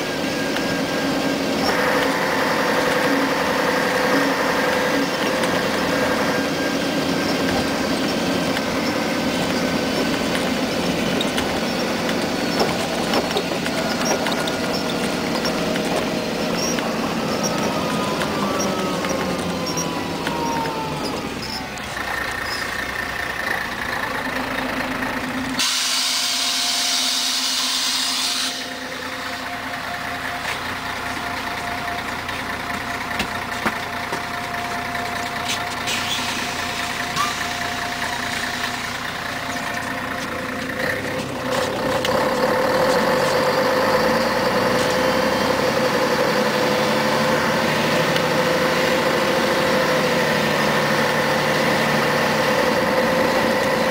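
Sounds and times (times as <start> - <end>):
bus diesel engine: 0.0 - 53.9
compressed air hiss: 25.6 - 28.7.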